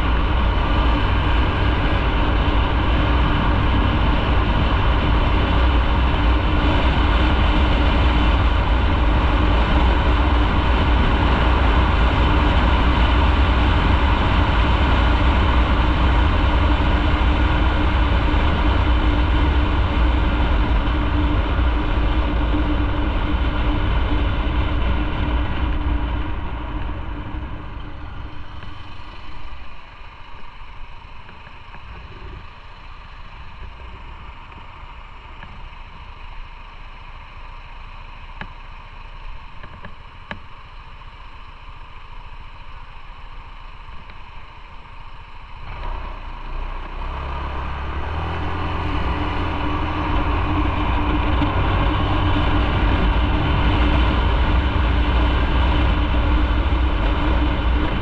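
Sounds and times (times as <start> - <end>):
motorcycle engine: 0.0 - 58.0.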